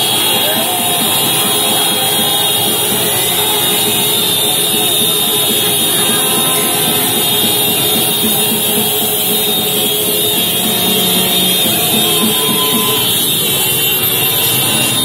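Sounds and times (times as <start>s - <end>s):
motorbike engines revving: 0.0s - 15.0s
motorbike horns honking: 0.0s - 15.0s.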